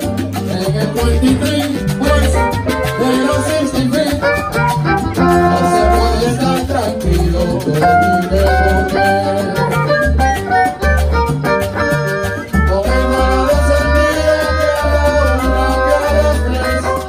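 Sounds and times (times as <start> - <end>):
salsa band playing: 0.0 - 17.0.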